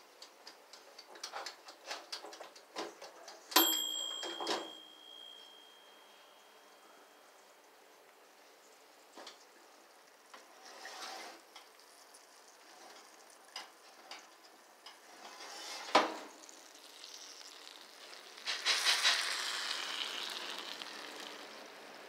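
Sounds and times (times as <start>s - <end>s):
food sizzling: 16.0s - 22.0s.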